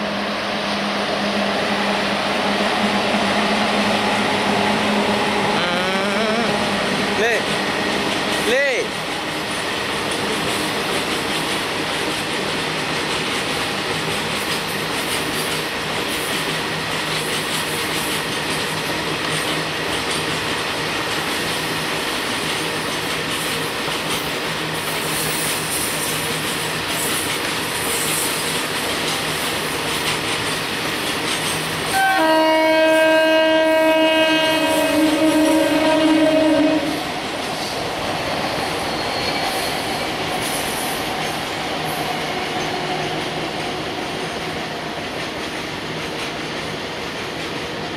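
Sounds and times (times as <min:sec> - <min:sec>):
train wheels rumbling on rails: 0:00.0 - 0:47.9
loud multi-tone train horn: 0:31.9 - 0:37.1.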